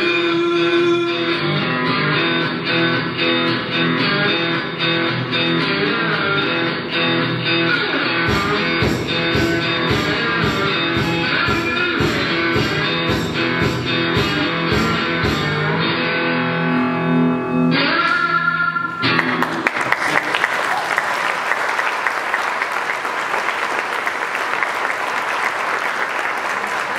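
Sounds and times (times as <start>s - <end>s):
slide guitar tune over a beat: 0.0s - 19.6s
audience applauding: 19.0s - 26.9s.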